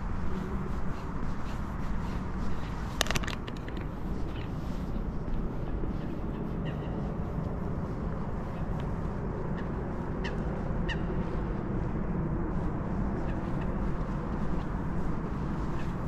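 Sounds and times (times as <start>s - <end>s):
low city rumble: 0.0s - 16.0s.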